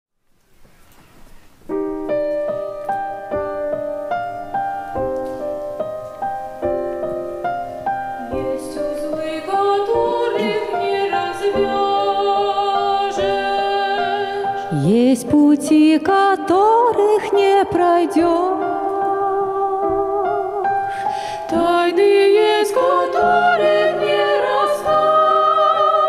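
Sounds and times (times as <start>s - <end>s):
grand piano chords: 1.2s - 26.0s.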